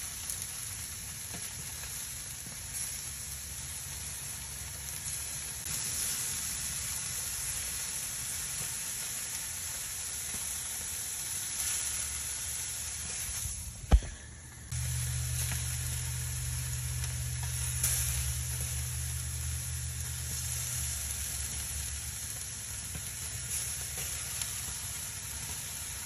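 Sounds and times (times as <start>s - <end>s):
charcoal crackling: 0.0s - 26.0s
charcoal hissing: 0.0s - 26.0s
low rumble: 13.3s - 23.4s.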